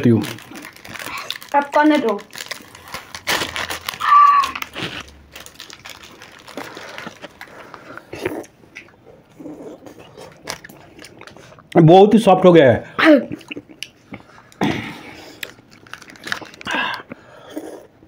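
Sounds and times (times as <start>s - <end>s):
plastic wrappers crinkling: 0.0s - 8.4s, 10.2s - 11.6s, 15.2s - 17.1s
licking and eating sounds: 0.0s - 11.8s, 13.3s - 18.0s.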